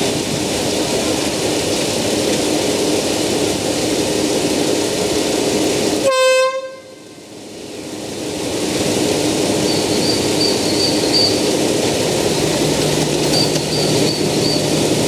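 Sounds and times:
diesel locomotive running: 0:00.0 - 0:15.0
locomotive horn toot: 0:06.0 - 0:07.2.

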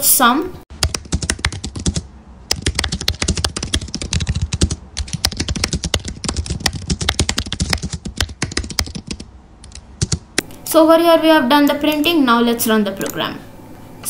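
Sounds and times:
fast keyboard typing: 0:00.8 - 0:10.4, 0:12.8 - 0:13.3.

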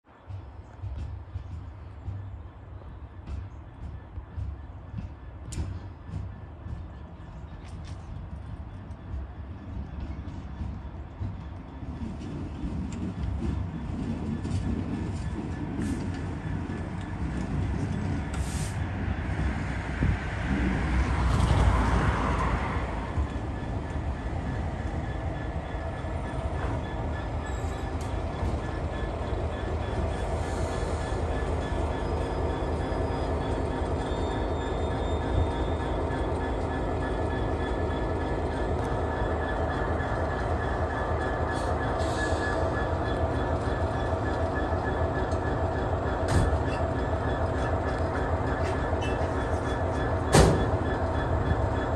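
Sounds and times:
diesel locomotive engine drone: 0:00.0 - 0:51.9
wheel and rail noise: 0:00.1 - 0:51.9.

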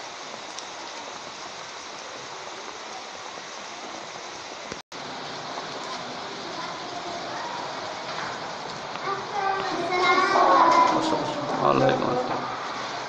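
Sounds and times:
rain hissing: 0:00.0 - 0:13.0.

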